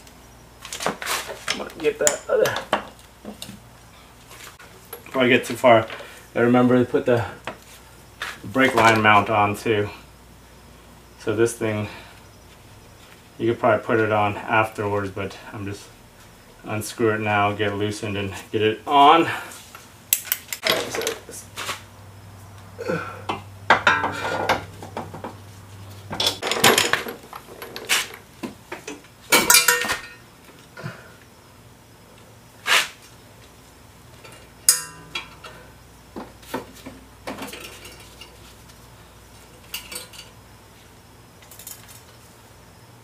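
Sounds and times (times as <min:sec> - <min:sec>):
metal parts and tools clanking: 0:23.8 - 0:25.1, 0:26.1 - 0:28.2, 0:28.8 - 0:30.2, 0:34.2 - 0:35.6, 0:37.3 - 0:38.4, 0:39.6 - 0:40.4
sharp metal knocks: 0:34.7 - 0:35.4.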